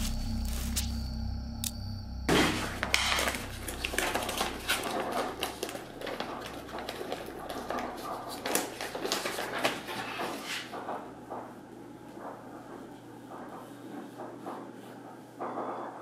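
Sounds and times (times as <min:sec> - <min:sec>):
low music drone: 0:00.0 - 0:08.7
paper rustling and pages flipping: 0:02.3 - 0:11.5.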